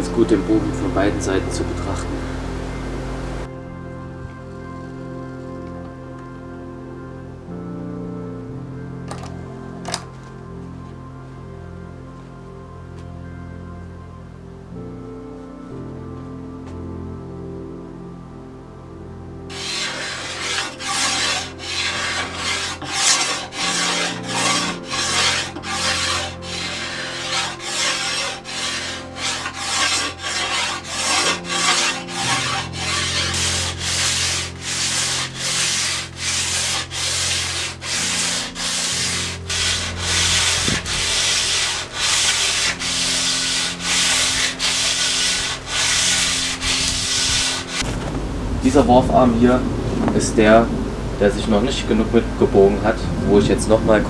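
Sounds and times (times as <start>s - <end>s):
hand tool scraping wood: 19.5s - 47.8s.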